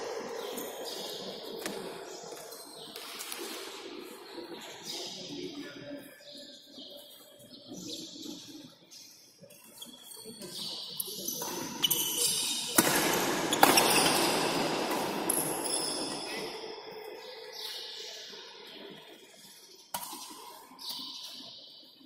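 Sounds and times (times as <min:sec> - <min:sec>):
shoes squeaking on court: 0:09.7 - 0:12.8, 0:13.4 - 0:16.5
racket hitting shuttlecock: 0:12.7 - 0:15.5.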